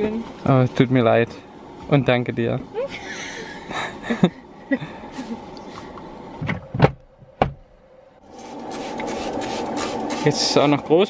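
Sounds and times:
woman laughing: 2.7 - 5.5.

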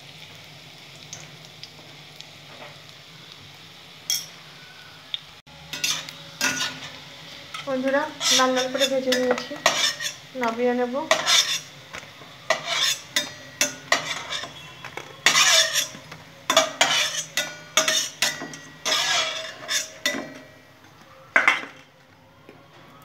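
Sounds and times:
metal spoon scraping a pan: 5.7 - 20.6.

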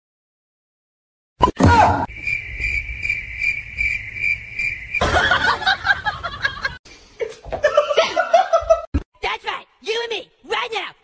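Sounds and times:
cricket chirping: 2.0 - 6.6
people laughing: 5.0 - 8.9.

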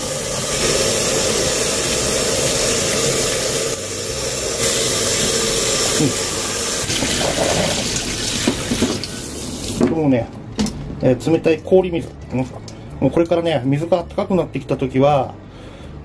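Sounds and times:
water pouring into sink: 0.0 - 9.8.

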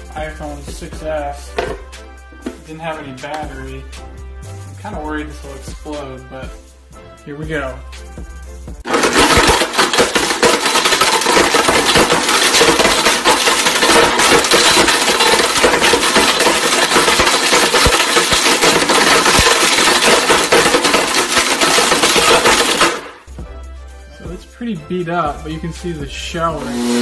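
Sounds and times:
blender grinding phone pieces: 8.9 - 23.3, 26.6 - 27.0.

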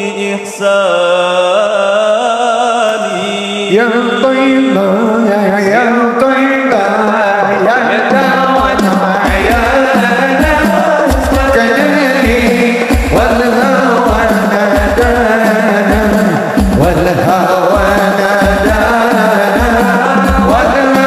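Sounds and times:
man singing devotional song: 0.0 - 21.0
frame drums: 7.7 - 21.0
deep drum beat: 7.8 - 21.0.

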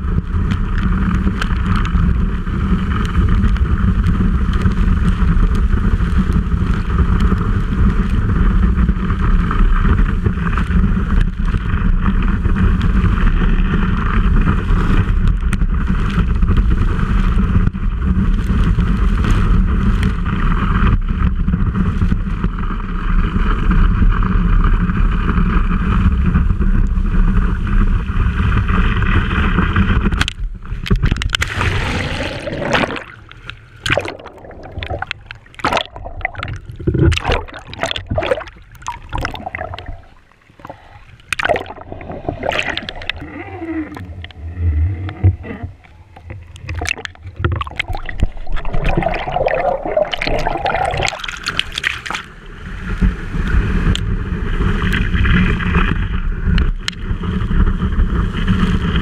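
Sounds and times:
water rushing against camera: 0.0 - 59.0
water splashing and gurgling: 28.6 - 59.0.

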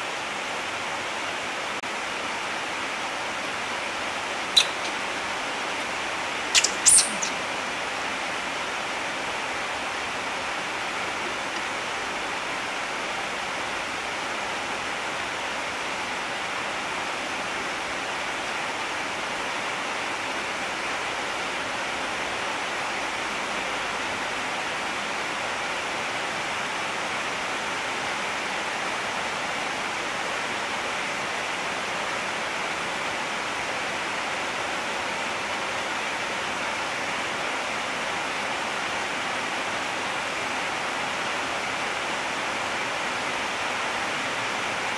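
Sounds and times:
steady hiss: 0.0 - 23.5.

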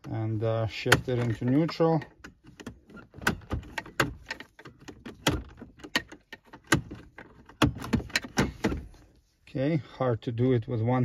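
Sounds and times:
gear shifter clicks and knocks: 0.0 - 9.2.

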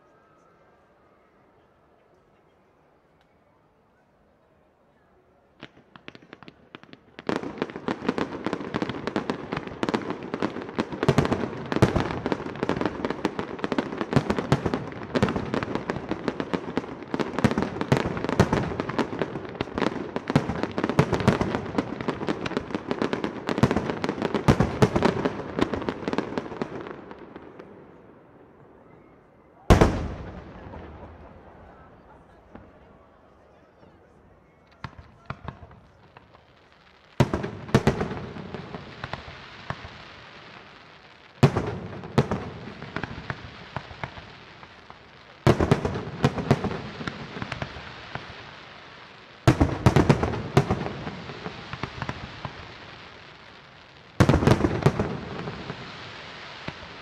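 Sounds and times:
fireworks bursts and bangs: 5.5 - 28.7, 29.6 - 33.8, 34.5 - 57.0
loud firework bang echoing: 29.7 - 32.7.

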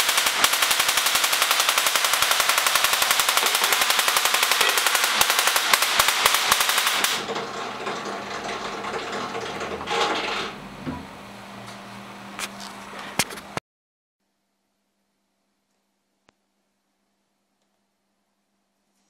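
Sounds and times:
crackling buzz of sparks: 0.0 - 7.2
sharp clicks: 0.0 - 7.2
steady hum: 0.0 - 7.8.

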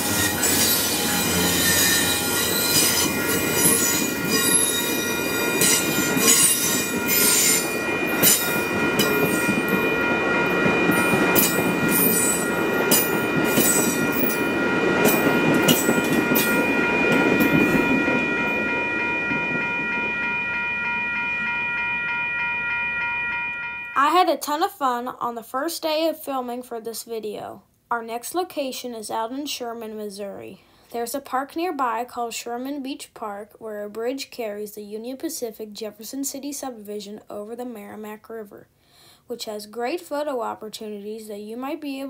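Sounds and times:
train wheels squealing: 0.0 - 19.9
train wheels rumbling and clicking: 0.0 - 22.8.

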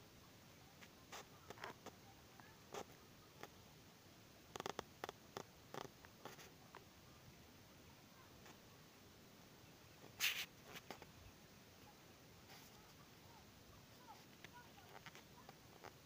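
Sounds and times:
scratchy rustles and clicks: 0.8 - 2.0, 10.0 - 11.1, 14.0 - 16.0.

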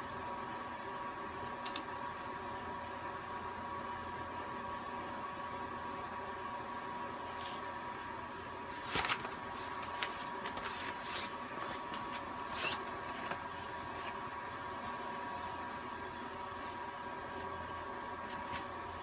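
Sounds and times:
steady hum with high whine: 0.0 - 19.0
paper crinkling and rustling: 8.7 - 14.2.

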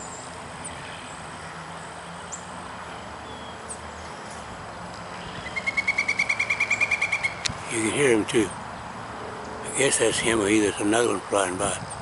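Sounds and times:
woodpecker calling: 5.1 - 8.9.

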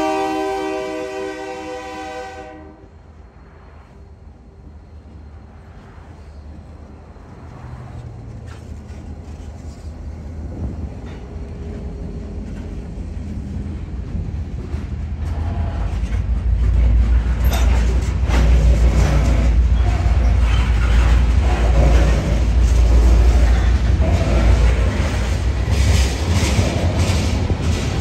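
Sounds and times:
diesel locomotives: 0.0 - 28.0
freight cars rolling over rails: 10.7 - 28.0.

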